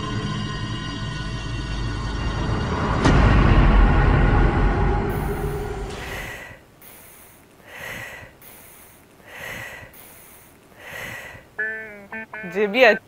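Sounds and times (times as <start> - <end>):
music: 0.0 - 5.9, 11.6 - 12.6
woman sniffing: 5.9 - 11.5.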